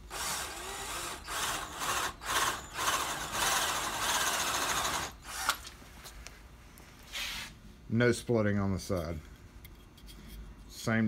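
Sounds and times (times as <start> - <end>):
power drill boring into wood: 0.1 - 5.6.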